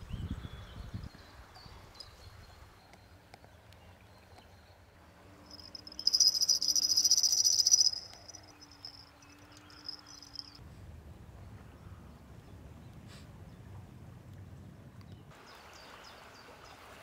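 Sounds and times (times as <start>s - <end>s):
small bells tinkling: 5.5s - 10.6s.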